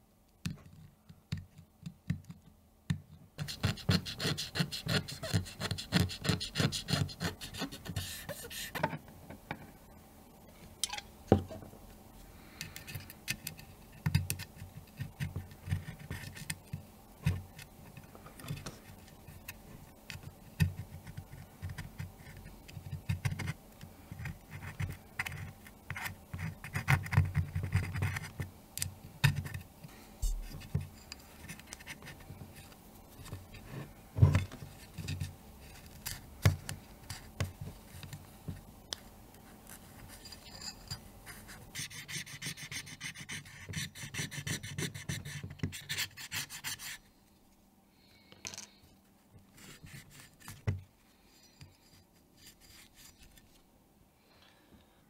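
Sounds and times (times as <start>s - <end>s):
small scratches and taps: 12.6s - 42.2s.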